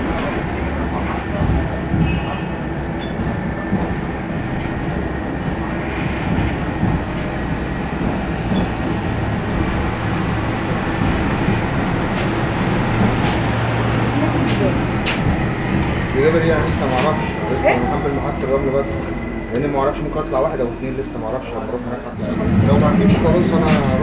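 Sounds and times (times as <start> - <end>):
tram wheels rumbling: 0.0 - 24.0.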